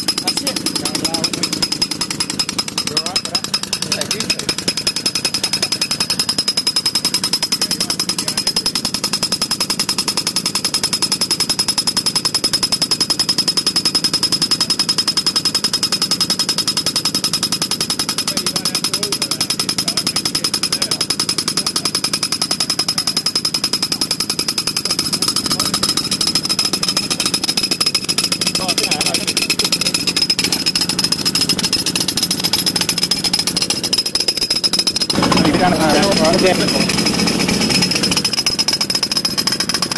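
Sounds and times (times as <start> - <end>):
impact mole hammering underground: 0.0 - 8.6, 20.4 - 39.9.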